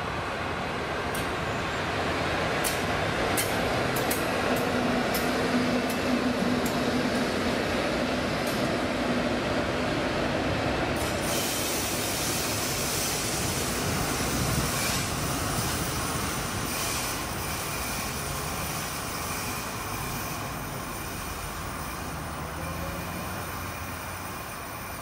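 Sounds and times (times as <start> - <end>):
freight train rolling on rails: 0.0 - 25.0
high wheel squeal: 16.7 - 25.0.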